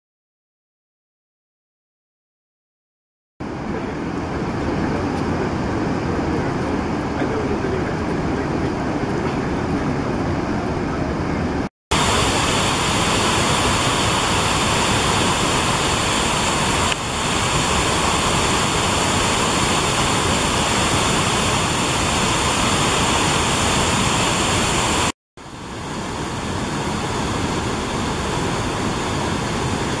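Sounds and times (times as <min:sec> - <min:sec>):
large waterfall rushing: 0:11.9 - 0:30.0.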